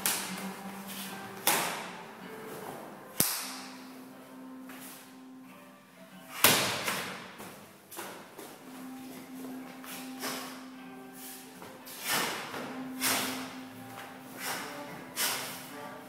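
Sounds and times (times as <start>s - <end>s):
faint music: 0.0s - 16.0s
sharp cracks of strikes: 3.2s - 3.7s, 6.4s - 7.3s.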